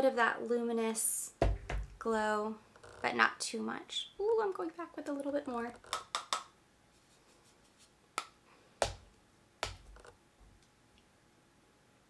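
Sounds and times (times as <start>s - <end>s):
sharp clicking taps: 5.9s - 6.5s, 9.6s - 9.9s.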